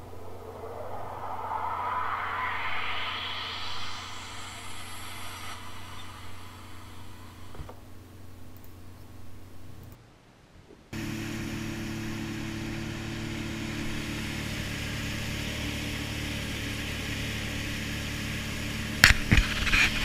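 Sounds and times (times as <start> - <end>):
jet ski engine humming: 5.0 - 9.8, 11.0 - 20.0.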